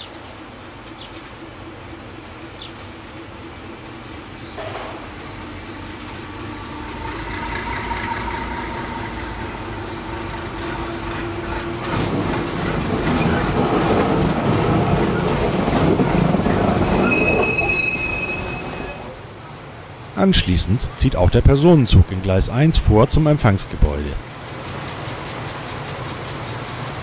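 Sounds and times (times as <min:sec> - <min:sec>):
diesel locomotive engine running: 0:00.0 - 0:27.0
high wheel squeal: 0:04.4 - 0:13.6, 0:16.5 - 0:19.2
freight wagons rumbling and clattering: 0:04.5 - 0:21.4.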